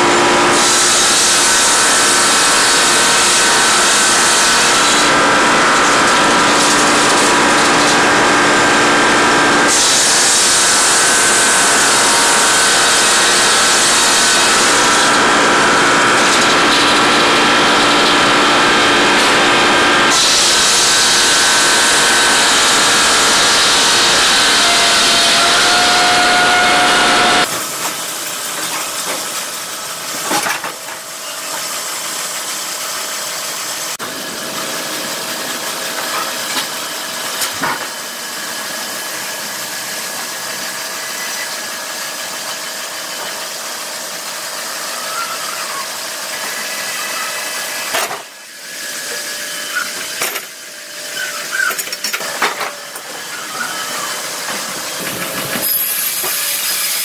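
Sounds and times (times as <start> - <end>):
saw blade cutting a log: 0.0 - 29.5, 48.8 - 57.0
log conveyor running: 0.0 - 57.0.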